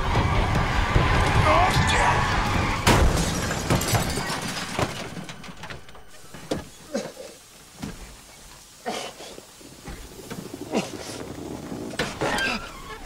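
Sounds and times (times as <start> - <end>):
vehicle crash impact: 0.0 - 6.8
debris tinkling: 0.9 - 7.0
glass shattering: 2.2 - 6.8.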